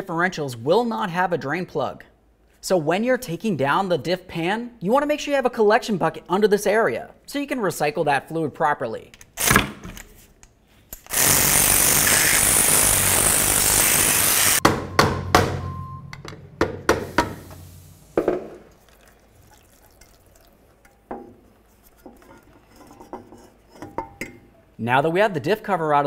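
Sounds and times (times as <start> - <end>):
power ratchet spinning bolts: 11.0 - 14.6
knocks on metal cover: 14.6 - 17.4.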